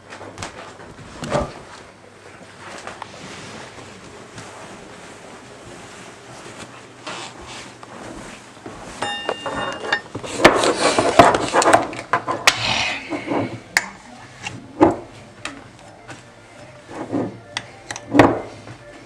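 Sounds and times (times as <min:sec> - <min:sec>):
short ringing tone: 0:09.0 - 0:10.0.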